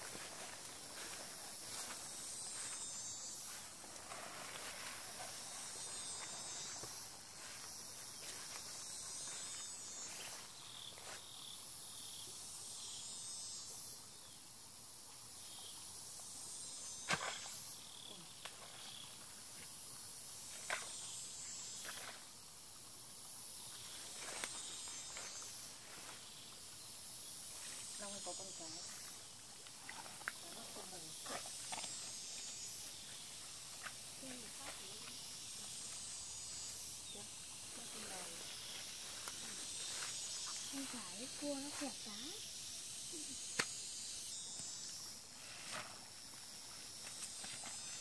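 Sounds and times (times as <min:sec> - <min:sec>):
footsteps through undergrowth: 0:00.0 - 0:11.2, 0:38.0 - 0:42.0
insect chirping: 0:00.0 - 0:48.0
insects buzzing: 0:00.0 - 0:48.0.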